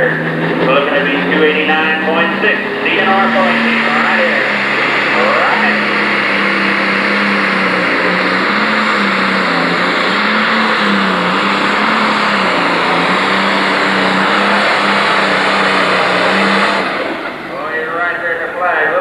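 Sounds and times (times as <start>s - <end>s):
diesel engine at full throttle: 0.0s - 19.0s.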